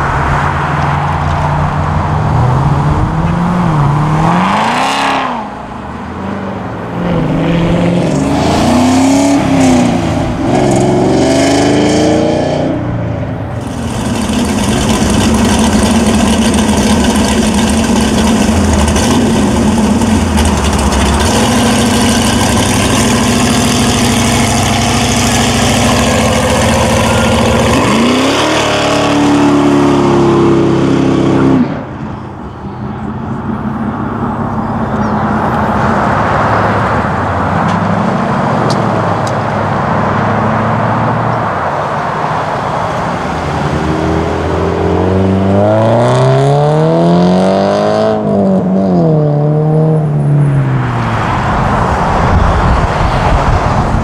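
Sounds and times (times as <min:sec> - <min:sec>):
performance car engines revving: 0:00.0 - 0:54.0
car engine accelerating hard: 0:13.6 - 0:32.0, 0:42.4 - 0:54.0.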